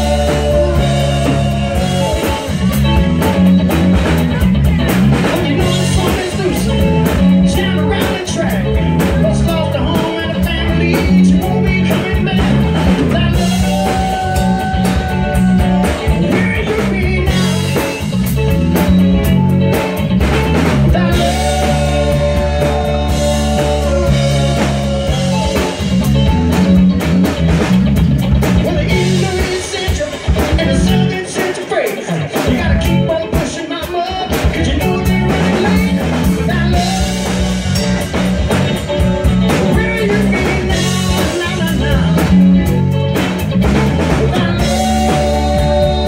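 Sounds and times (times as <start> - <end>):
male singer: 0.0 - 3.4, 5.1 - 18.0, 20.6 - 25.8, 28.6 - 37.7, 39.4 - 42.8, 43.9 - 46.0
bass guitar: 0.0 - 46.0
drum kit beat: 0.0 - 46.0
electric guitar: 0.0 - 46.0.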